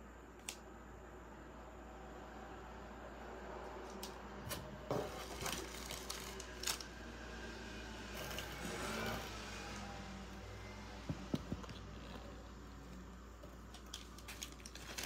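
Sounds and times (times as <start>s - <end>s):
plastic pouch rustling: 5.2s - 6.9s, 13.6s - 15.0s.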